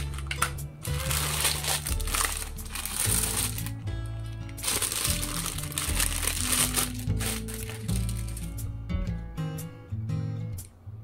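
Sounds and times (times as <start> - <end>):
plastic bag crinkling: 0.0 - 3.8, 4.5 - 8.6
background music: 0.0 - 11.0.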